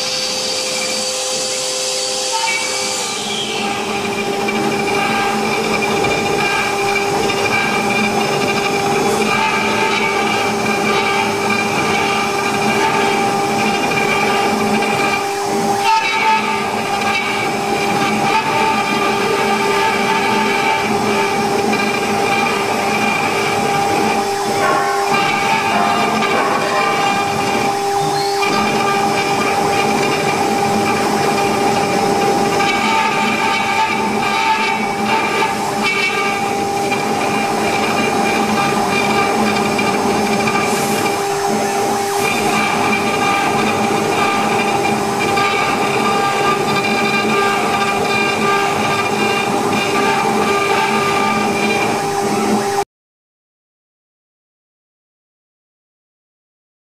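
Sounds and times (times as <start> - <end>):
bit cutting wood hiss: 0.0 - 6.7
router spindle whining hum: 0.0 - 52.8
bit rasping into wood: 2.4 - 41.2, 41.8 - 51.8.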